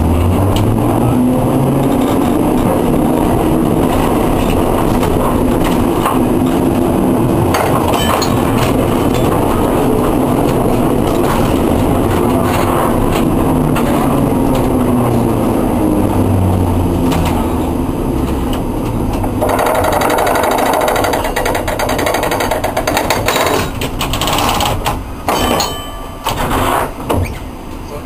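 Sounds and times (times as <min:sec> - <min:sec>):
tram motor hum: 0:00.0 - 0:28.0
wheel noise on rails: 0:00.0 - 0:28.0
fast mechanical rattle: 0:19.4 - 0:25.0.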